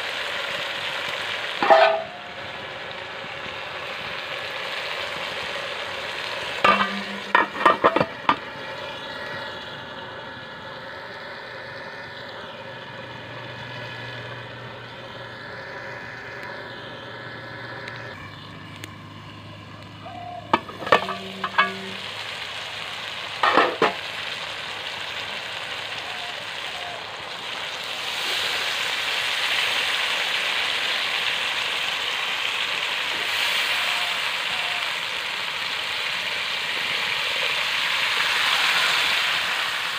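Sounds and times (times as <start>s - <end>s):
water pouring into pan: 0.0s - 9.9s, 20.4s - 39.9s
curry simmering and sizzling: 0.0s - 39.9s
metal lid clanking: 1.6s - 2.4s, 6.6s - 8.4s, 20.5s - 22.1s, 23.4s - 24.0s.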